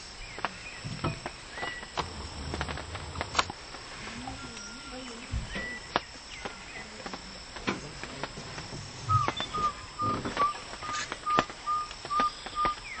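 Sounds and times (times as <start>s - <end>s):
animal whistled calls: 9.0s - 13.0s.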